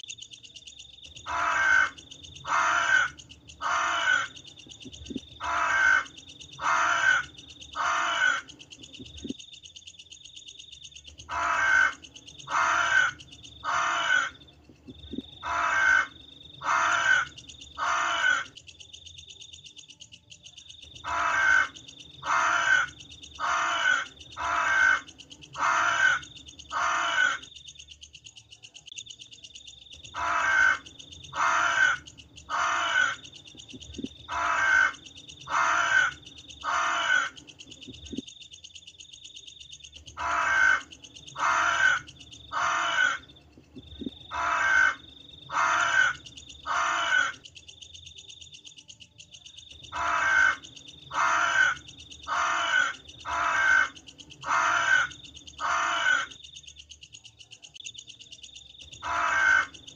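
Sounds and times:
crows cawing: 1.2 - 4.4, 5.0 - 8.6, 11.2 - 14.4, 15.4 - 18.6, 21.0 - 27.5, 30.1 - 33.3, 34.3 - 38.2, 40.1 - 43.3, 44.3 - 47.4, 49.9 - 56.4, 59.0 - 59.9.

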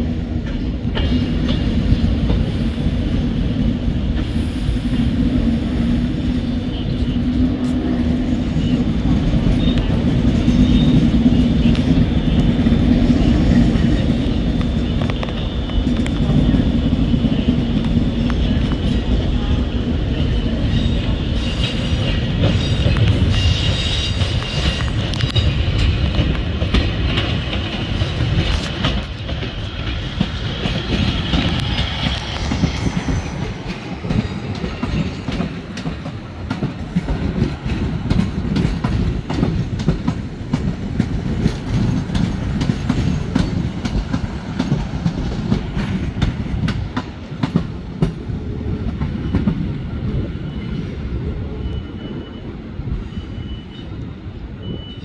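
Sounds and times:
train rumble: 0.0 - 55.0
train wheels clicking over rail joints: 0.3 - 3.0, 20.5 - 49.8.

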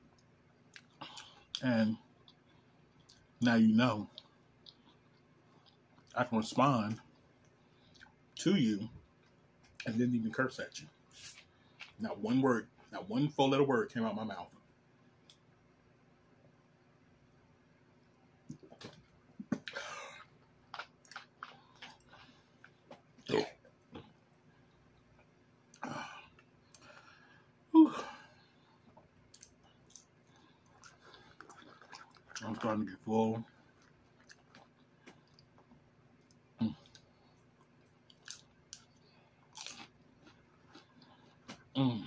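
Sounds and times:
lip smacks and mouth clicks: 0.1 - 1.6, 18.4 - 19.8, 28.9 - 32.4
person chewing: 0.2 - 3.4, 7.4 - 8.2, 18.4 - 27.1, 28.5 - 32.7, 33.4 - 42.0
loud burp: 23.3 - 23.6.

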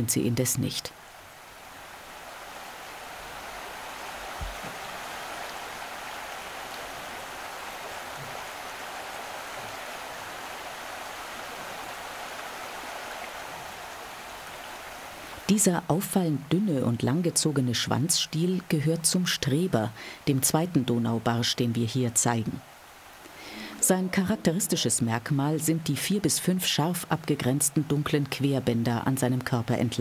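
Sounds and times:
running water rushing: 0.9 - 15.8, 16.4 - 29.8
faint low thump: 4.4 - 4.8.

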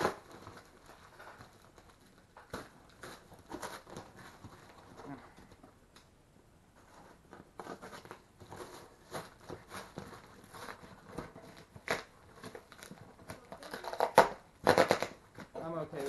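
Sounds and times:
tape and cardboard ripping: 0.0 - 5.1, 7.6 - 16.0
paper packing crinkling: 0.0 - 5.6, 6.8 - 16.0.

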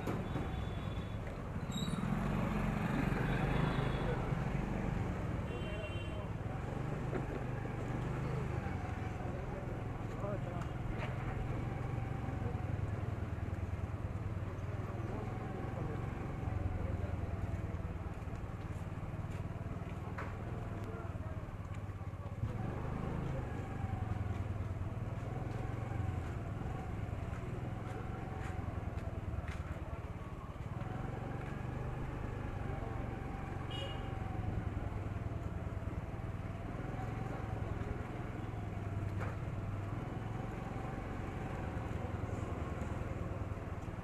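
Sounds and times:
traffic rumble: 0.0 - 44.0
voices of passers-by: 0.0 - 44.0.

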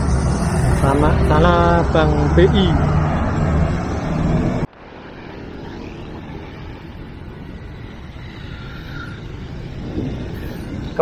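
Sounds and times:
bus engine rumble: 0.0 - 11.0
wind-like hiss: 4.7 - 11.0.

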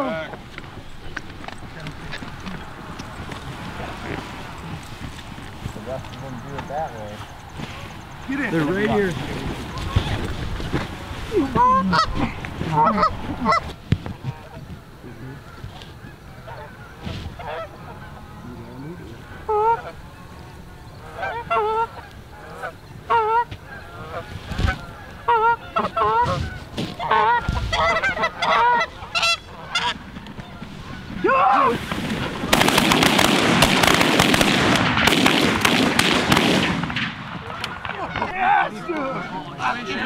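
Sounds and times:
goose honking and clucking: 11.3 - 31.5, 37.4 - 40.0.

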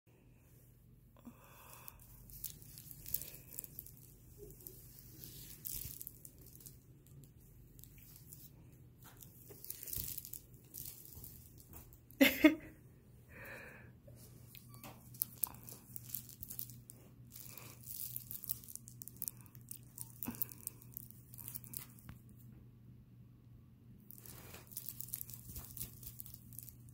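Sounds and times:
fabric rustling and crinkling: 1.9 - 12.2, 14.5 - 22.2, 24.1 - 26.9.

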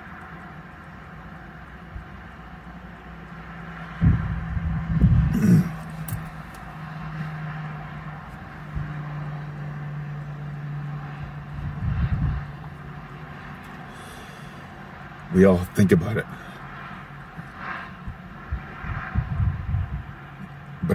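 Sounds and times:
low hum in car cabin: 0.0 - 20.9
loud low thumps and rumbles: 4.0 - 5.7, 18.1 - 20.1.

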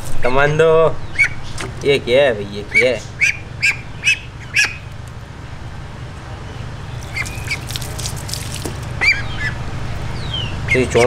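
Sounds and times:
steady low hum: 0.0 - 11.0
duck squeaky calls: 1.0 - 1.6, 2.6 - 5.0, 6.9 - 8.0, 9.0 - 9.6.

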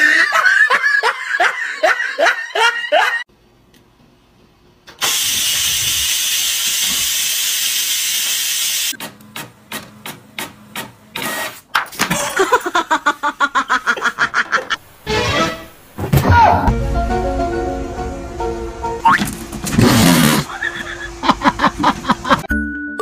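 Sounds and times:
rice cooker steam hissing: 5.0 - 9.0.

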